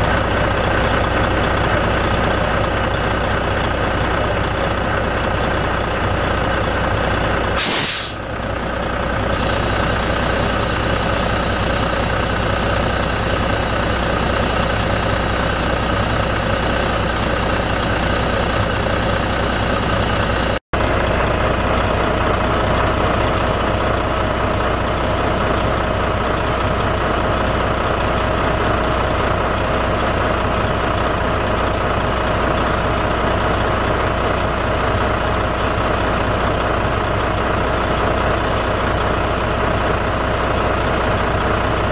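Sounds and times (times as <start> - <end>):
diesel truck idling: 0.0 - 41.9
compressed air blast: 7.6 - 8.2.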